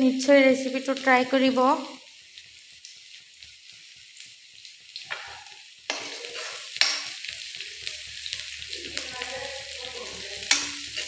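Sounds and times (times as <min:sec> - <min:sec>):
onions sizzling in hot oil: 0:00.0 - 0:11.0
spatula scraping pan: 0:05.1 - 0:07.4.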